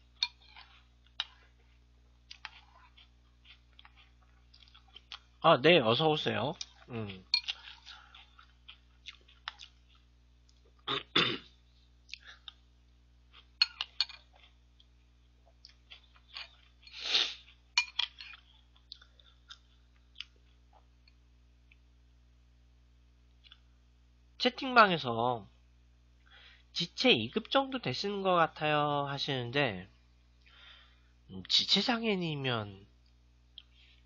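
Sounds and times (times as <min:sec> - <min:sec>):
chewing: 0:00.1 - 0:05.4, 0:06.5 - 0:10.9, 0:12.0 - 0:12.6, 0:13.3 - 0:21.8.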